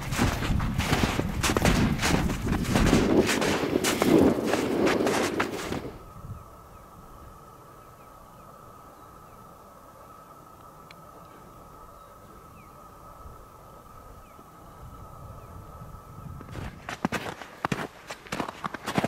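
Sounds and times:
footsteps crunching on snow: 0.0s - 6.0s, 16.4s - 19.0s
faint steady hiss: 4.2s - 18.5s.

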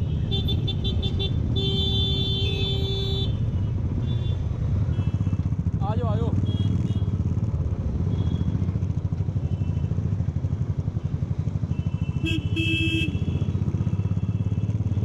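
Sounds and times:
vehicle horn honking: 0.1s - 3.4s, 11.7s - 13.4s
motorcycle engine running: 0.1s - 15.0s.

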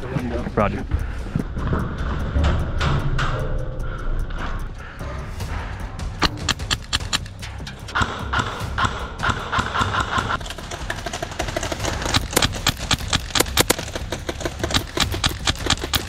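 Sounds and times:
airsoft guns firing: 8.0s - 16.0s.

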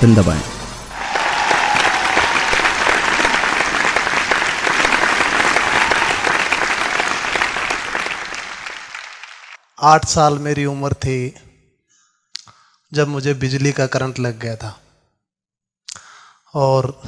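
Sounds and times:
audience applauding: 0.9s - 9.7s.

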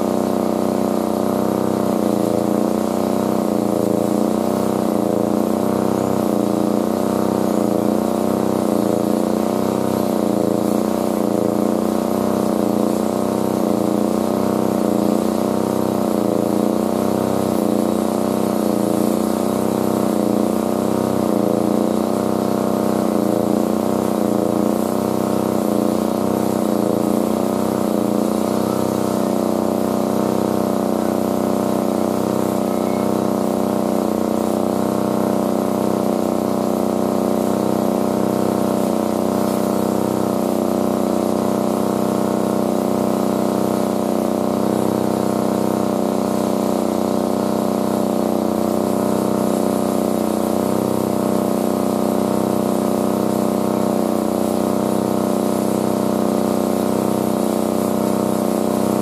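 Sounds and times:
machine drone: 23.2s - 34.8s.

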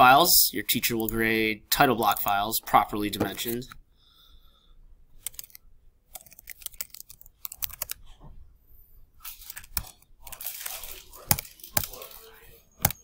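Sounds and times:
computer keyboard typing: 5.2s - 8.0s, 9.3s - 13.0s.

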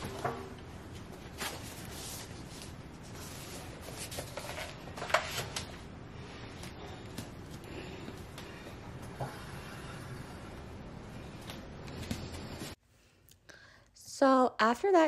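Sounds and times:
paper rustling: 0.9s - 5.8s.

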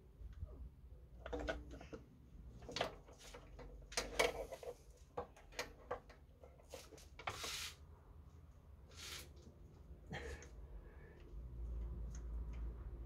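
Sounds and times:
small clicks knocks and rustles: 1.2s - 7.4s.

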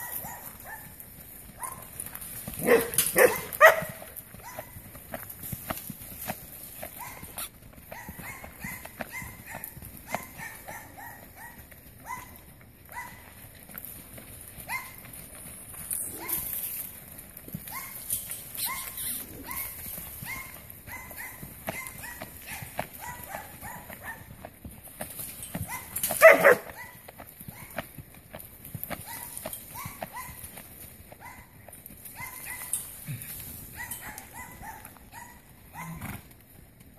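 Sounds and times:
dog barking and yipping: 0.0s - 1.0s, 1.6s - 1.9s, 2.6s - 4.8s, 6.8s - 13.3s, 14.7s - 15.0s, 16.1s - 16.5s, 17.6s - 18.0s, 18.6s - 24.3s, 25.6s - 27.8s, 29.0s - 30.4s, 31.2s - 32.9s, 33.7s - 36.0s
horse hoofbeats on dirt: 0.0s - 36.9s.

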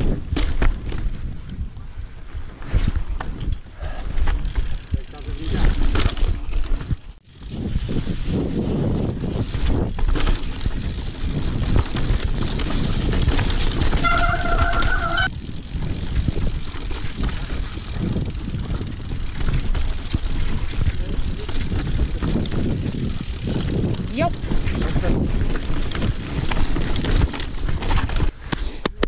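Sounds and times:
mountain bike rattling over rocks: 0.0s - 1.6s, 4.1s - 28.5s
steady squeal: 13.8s - 15.3s.

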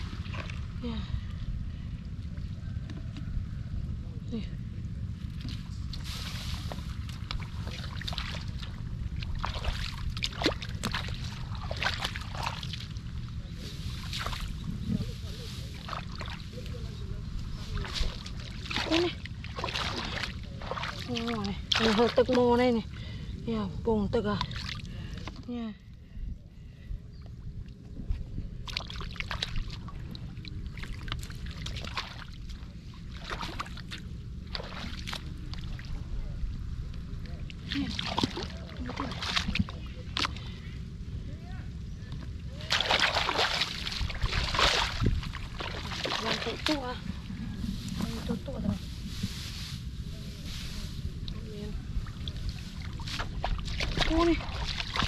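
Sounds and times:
water sloshing and splashing: 0.0s - 1.3s, 5.2s - 23.0s, 24.2s - 25.5s, 28.6s - 40.6s, 42.5s - 49.7s, 50.5s - 55.0s
wind rumble on microphone: 0.0s - 55.0s.

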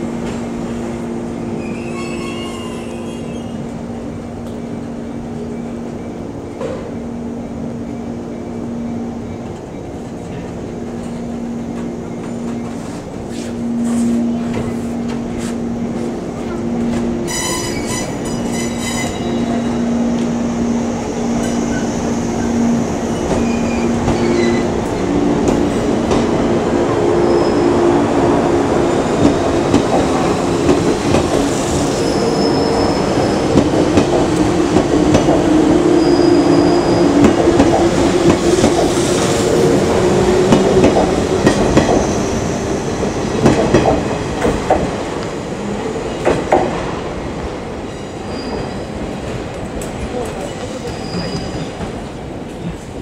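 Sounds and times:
rumble of train cars: 0.0s - 53.0s.

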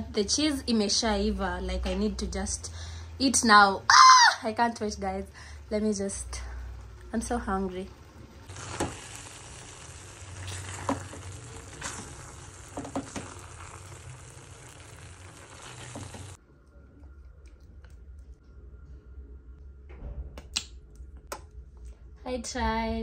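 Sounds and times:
pasta sizzling in frying pan: 5.7s - 16.4s.

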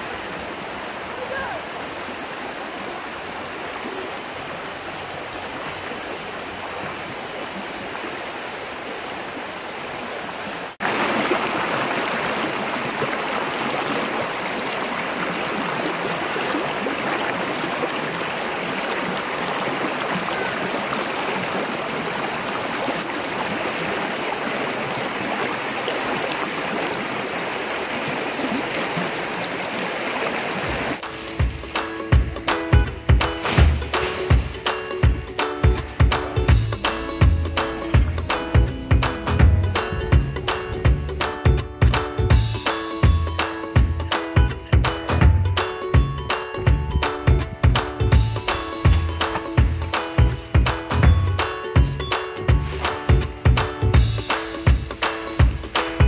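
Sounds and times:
stream splashing over rocks: 5.2s - 31.4s, 33.2s - 36.4s.

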